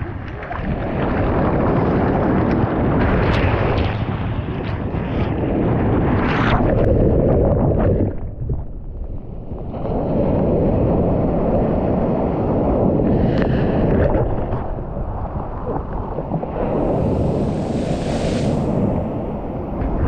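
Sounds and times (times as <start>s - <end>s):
surf washing over microphone: 0.0s - 8.2s, 9.0s - 20.0s
wind-like rumble: 0.0s - 20.0s.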